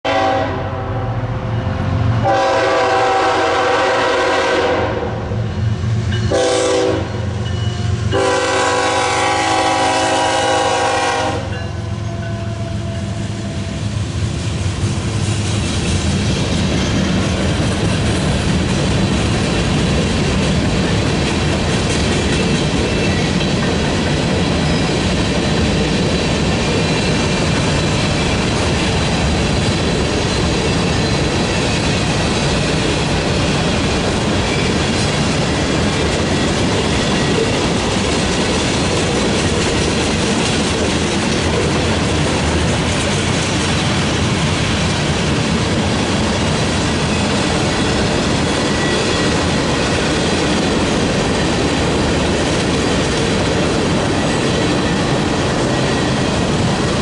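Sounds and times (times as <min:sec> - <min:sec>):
locomotive air horn blasts: 0:00.0 - 0:01.3, 0:02.2 - 0:05.4, 0:06.3 - 0:07.3, 0:08.1 - 0:13.7
train cars rolling: 0:01.4 - 0:57.0
wheels clacking over rail joints: 0:15.5 - 0:57.0.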